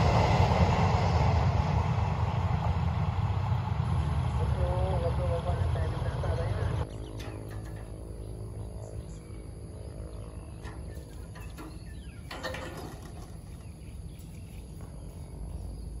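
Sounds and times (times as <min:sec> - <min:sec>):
steady low rumble: 0:00.0 - 0:16.0
signal arm mechanical rattle: 0:06.9 - 0:09.4, 0:10.2 - 0:14.3.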